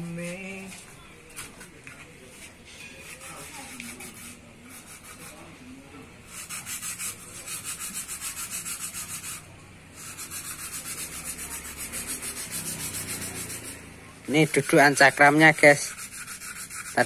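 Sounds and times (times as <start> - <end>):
rapid rubbing strokes: 3.0 - 5.6, 6.2 - 17.0.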